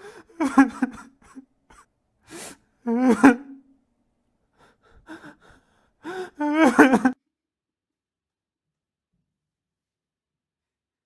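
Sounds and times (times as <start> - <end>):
man crying and sobbing: 0.0 - 3.7, 4.6 - 7.2.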